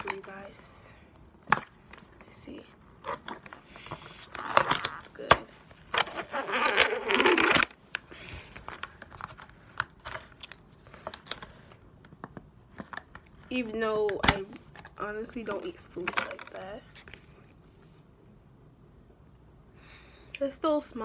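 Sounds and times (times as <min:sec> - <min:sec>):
plastic lid crinkling and crackling: 0:03.0 - 0:07.8, 0:14.1 - 0:17.2.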